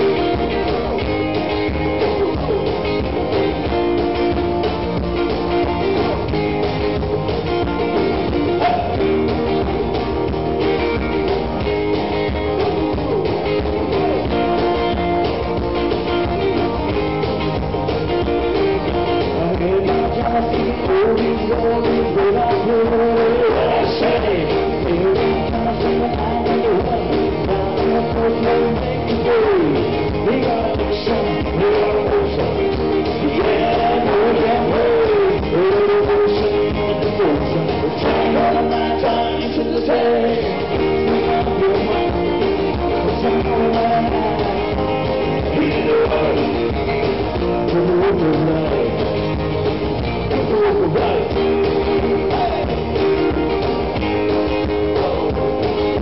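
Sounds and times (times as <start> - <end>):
man singing: 0.0 - 3.7, 7.6 - 9.7, 12.6 - 15.0, 18.8 - 49.3, 50.2 - 53.6, 54.2 - 56.0
acoustic guitars strummed: 0.0 - 56.0
lead guitar line: 0.0 - 56.0.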